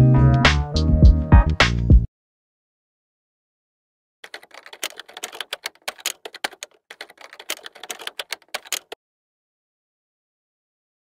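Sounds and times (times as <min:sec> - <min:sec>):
keyboard typing clicks: 0:04.2 - 0:09.0.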